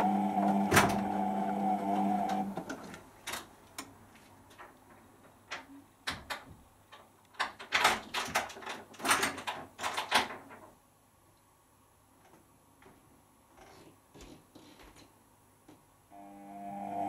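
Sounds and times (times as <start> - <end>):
washing machine drum sloshing: 0.0 - 3.2
faint steady tone: 16.1 - 17.0.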